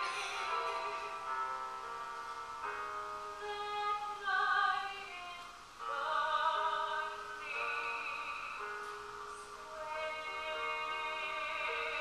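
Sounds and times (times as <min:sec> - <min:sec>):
grand piano: 0:00.0 - 0:12.0
woman singing: 0:03.3 - 0:12.0.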